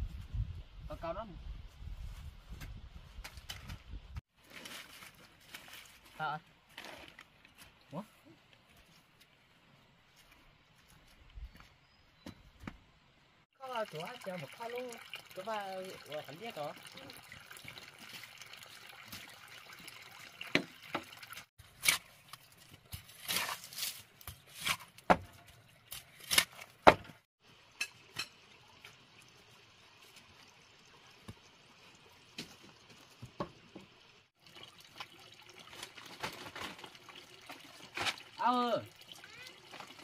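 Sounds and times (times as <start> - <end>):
water sloshing and trickling: 4.3 - 7.8, 13.6 - 26.8, 27.8 - 40.0.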